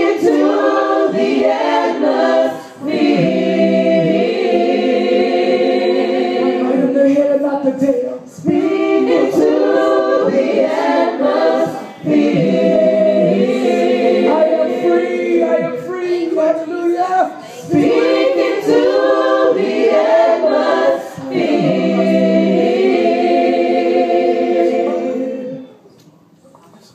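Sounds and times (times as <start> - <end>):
group singing a worship song: 0.0 - 25.8.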